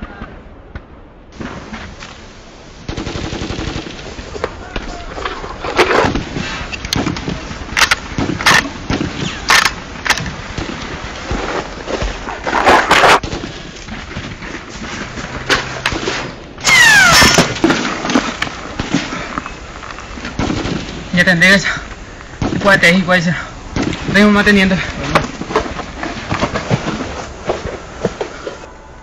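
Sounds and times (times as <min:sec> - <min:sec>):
gunshots: 0:02.8 - 0:05.1, 0:05.7 - 0:19.2, 0:20.4 - 0:21.8, 0:22.4 - 0:25.6.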